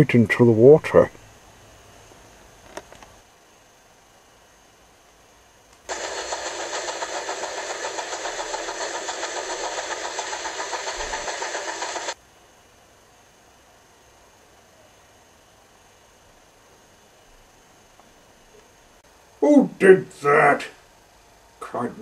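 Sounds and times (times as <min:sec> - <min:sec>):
engine sound effect pulsing: 0:05.9 - 0:12.2.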